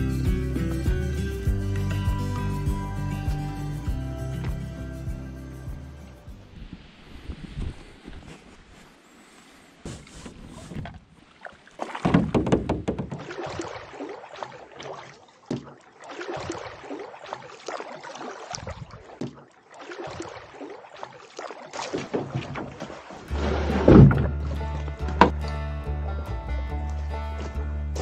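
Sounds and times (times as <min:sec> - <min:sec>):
paddle strokes splashing water: 0:06.4 - 0:25.7
sharp knocks: 0:12.0 - 0:13.4.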